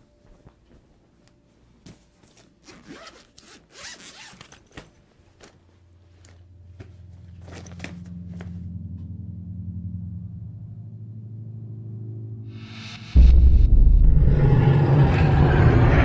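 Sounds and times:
low droning tone: 6.6s - 16.0s.

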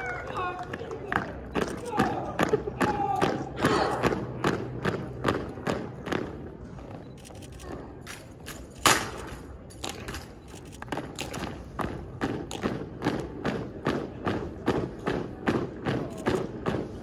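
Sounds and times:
rifles slapped and struck: 8.0s - 14.1s.

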